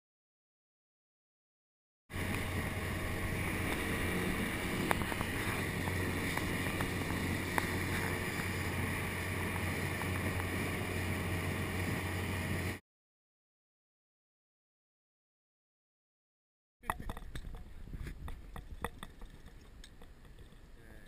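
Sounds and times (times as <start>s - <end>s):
boat motor hum: 2.1s - 12.8s, 16.8s - 21.0s
wind and water rushing: 2.1s - 12.8s.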